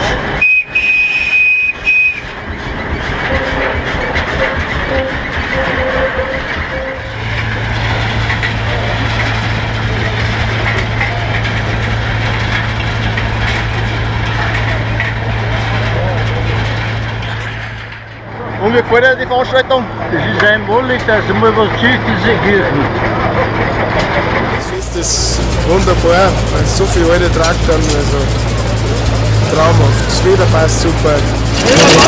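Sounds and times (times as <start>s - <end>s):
steam engine hissing: 0.0s - 17.4s, 24.5s - 32.0s
steam whistle blast: 0.4s - 2.3s
steady low drone: 1.7s - 32.0s.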